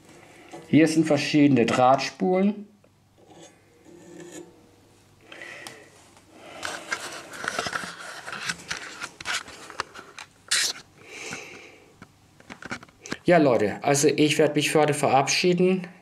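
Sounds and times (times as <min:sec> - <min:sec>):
camera handling scrapes and clicks: 0:06.6 - 0:10.9.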